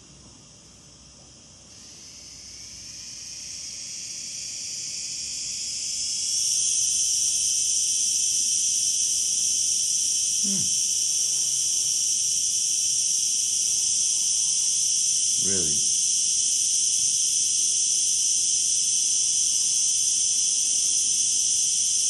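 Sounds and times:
cicada buzzing drone: 0:00.9 - 0:22.0.

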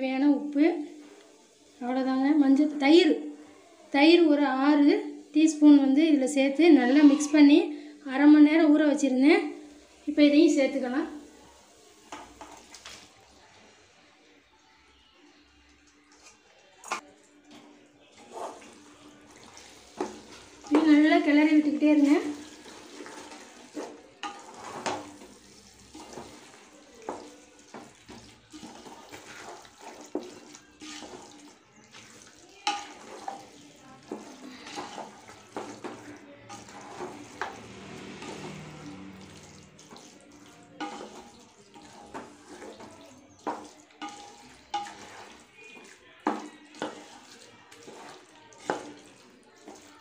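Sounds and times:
spoon scraping a metal pot: 0:18.2 - 0:49.8
wet squelching and slopping: 0:22.0 - 0:50.0.

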